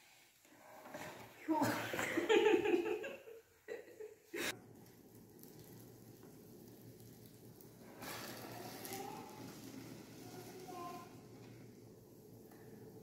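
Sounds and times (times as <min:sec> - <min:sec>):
flatbread sizzling on hot plate: 0:04.5 - 0:13.0.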